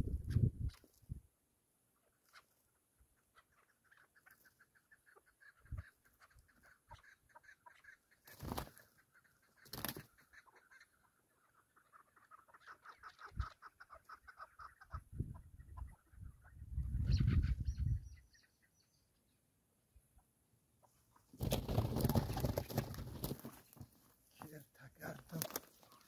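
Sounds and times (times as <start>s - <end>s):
wings flapping: 8.2s - 9.0s, 9.6s - 10.2s, 21.3s - 24.0s, 25.0s - 26.0s.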